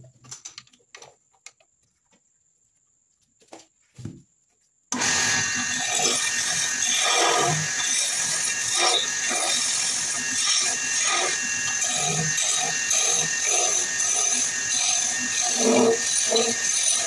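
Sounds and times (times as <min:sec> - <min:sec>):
wood lathe running: 0:05.0 - 0:17.0.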